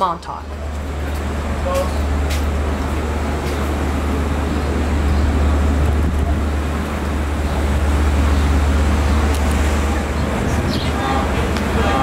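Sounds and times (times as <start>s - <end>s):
low engine rumble: 0.0s - 12.0s
outdoor noise: 0.0s - 12.0s.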